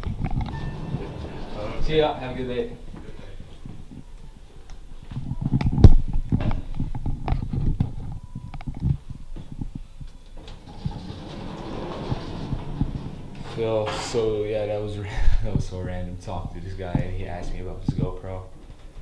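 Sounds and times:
elevator knocks and rattles: 0.0 - 2.2, 10.4 - 14.8
elevator doors sliding shut: 0.0 - 2.7, 10.3 - 15.0
steady hiss of travelling elevator: 0.4 - 3.7, 10.4 - 17.8.

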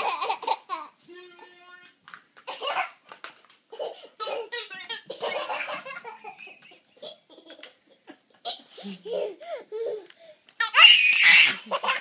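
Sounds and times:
toddler laughing: 3.7 - 7.8, 8.4 - 12.0.

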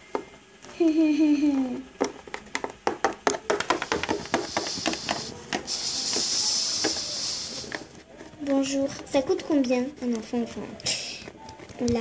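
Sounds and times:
steady hiss: 3.7 - 8.0.

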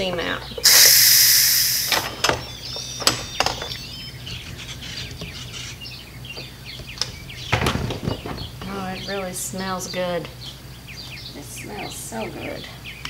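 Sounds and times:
steam valve hissing: 0.6 - 2.1.

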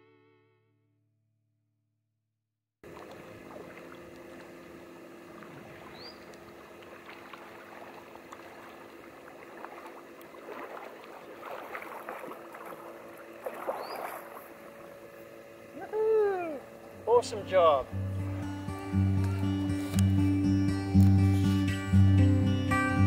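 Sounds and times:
kayak paddles splashing in water: 2.8 - 18.4
steady low hum: 2.8 - 23.0.

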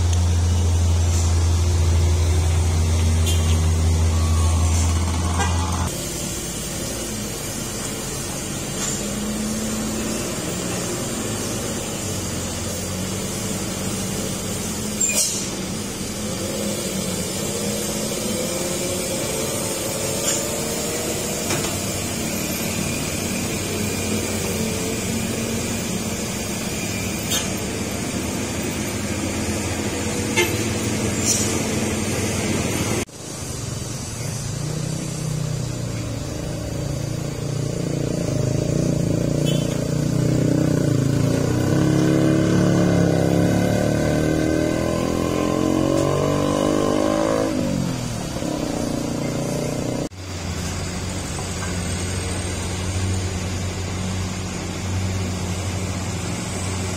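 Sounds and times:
truck diesel engine running slowly: 0.0 - 41.8
road traffic: 0.0 - 56.9.

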